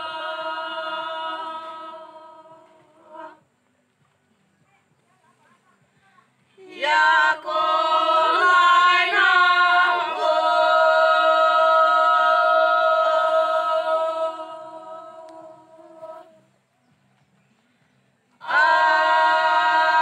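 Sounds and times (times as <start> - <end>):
group singing unaccompanied: 0.0 - 3.4, 6.6 - 16.4, 18.4 - 20.0.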